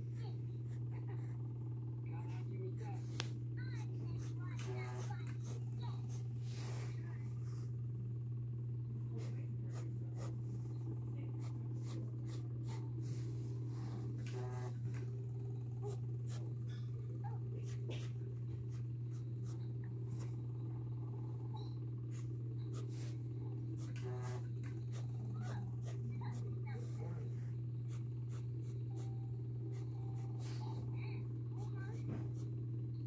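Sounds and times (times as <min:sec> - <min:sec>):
steady low hum: 0:00.0 - 0:33.0
pencil scratching on paper: 0:04.1 - 0:06.9, 0:09.2 - 0:10.7, 0:11.4 - 0:14.8, 0:23.8 - 0:27.1.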